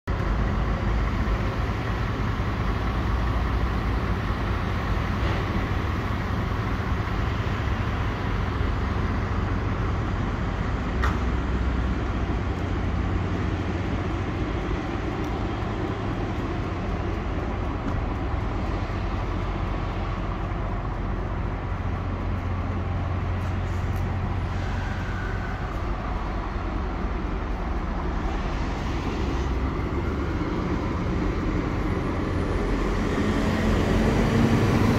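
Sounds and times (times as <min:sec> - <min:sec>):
diesel truck idling: 0:00.1 - 0:34.9.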